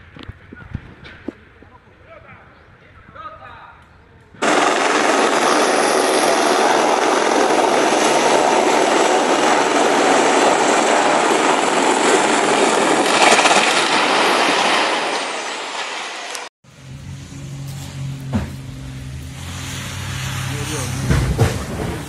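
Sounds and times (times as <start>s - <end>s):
helicopter rotors and turbine: 4.4s - 22.0s.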